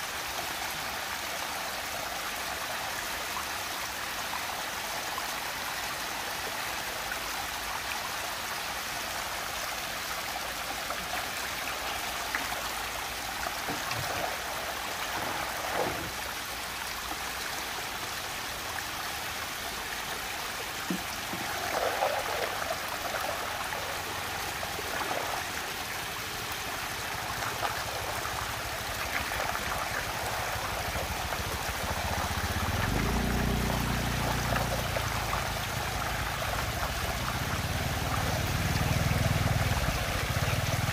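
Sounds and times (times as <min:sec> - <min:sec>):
water swirling down a whirlpool: 0:09.2 - 0:40.9.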